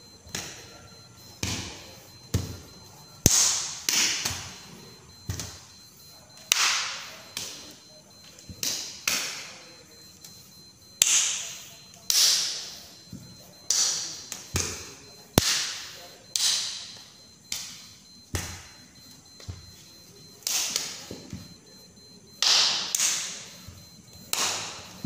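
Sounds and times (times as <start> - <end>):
echoing hand slaps: 17.5 - 17.8, 24.3 - 24.8.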